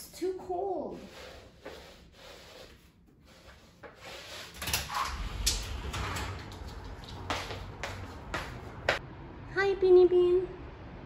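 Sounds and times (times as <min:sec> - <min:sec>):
footsteps in slippers on hardwood: 0:06.5 - 0:09.0.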